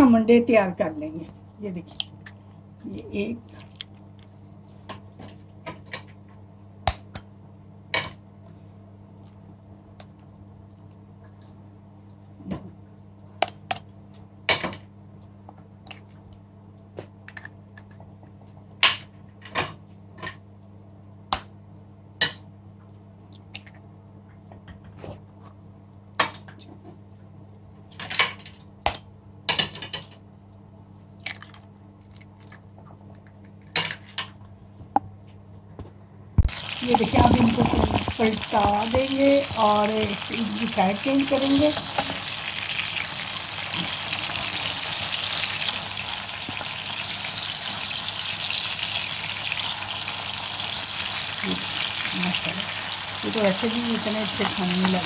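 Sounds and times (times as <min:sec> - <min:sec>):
eggshells cracking: 0:31.0 - 0:32.6.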